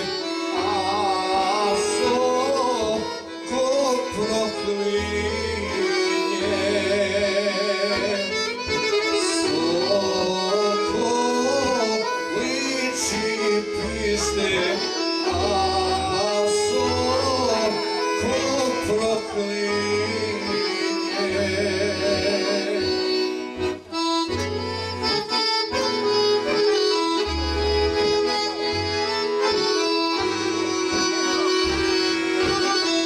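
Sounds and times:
man singing with vibrato: 0.0 - 23.8
accordions: 0.0 - 33.0.

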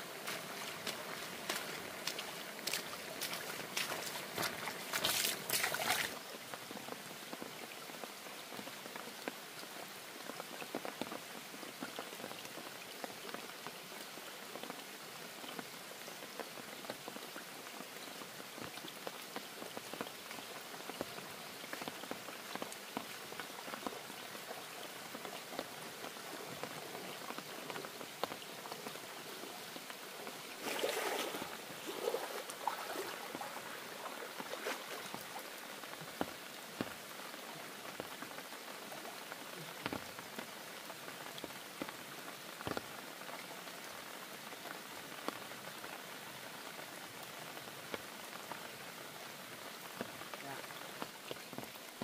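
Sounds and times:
steady rain falling: 0.0 - 52.0
splashy rustling: 0.2 - 6.2, 30.6 - 35.4.

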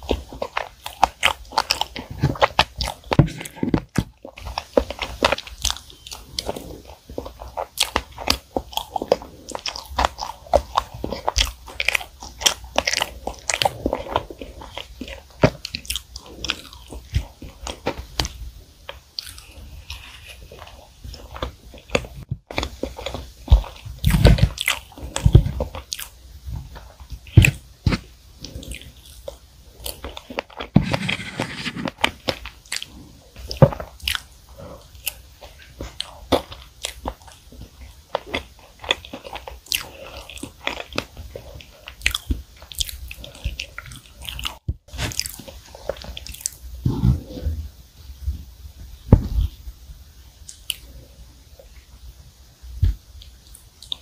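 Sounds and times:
chewing and wet mouth clicks: 4.2 - 26.2, 31.9 - 46.6, 50.4 - 51.0, 53.2 - 54.0.

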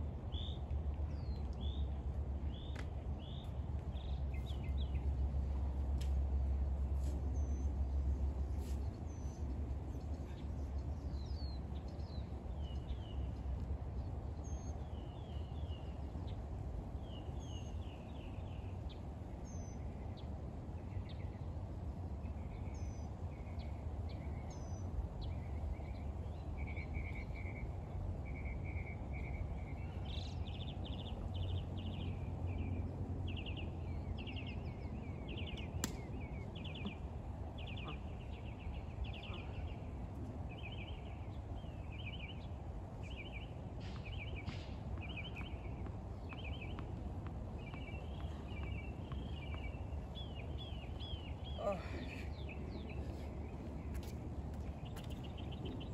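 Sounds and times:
small birds chirping: 22.2 - 55.9.

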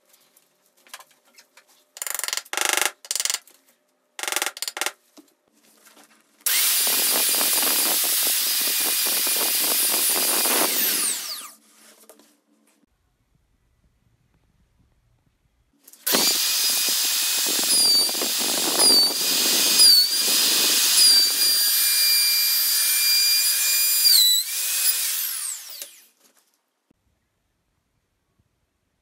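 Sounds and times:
router spinning down: 6.5 - 11.5, 16.1 - 26.1
router whining while cutting: 6.5 - 11.5, 16.1 - 26.1.

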